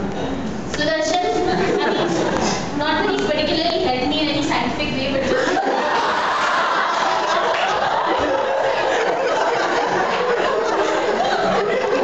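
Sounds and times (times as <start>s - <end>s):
audience laughing and chattering: 1.3s - 3.5s, 5.2s - 12.0s.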